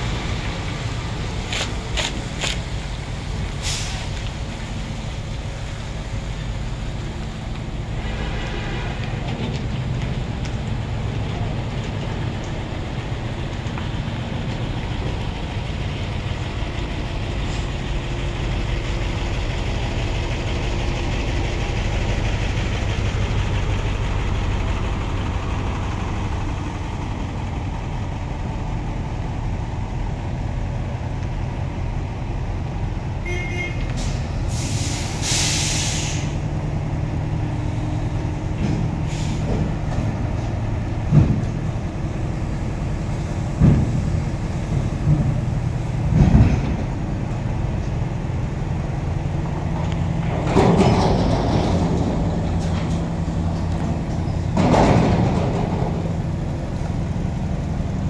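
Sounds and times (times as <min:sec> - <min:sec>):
diesel truck engine running: 0:00.0 - 0:58.0
air brake hiss: 0:03.6 - 0:04.2, 0:34.0 - 0:36.5, 0:39.0 - 0:39.5.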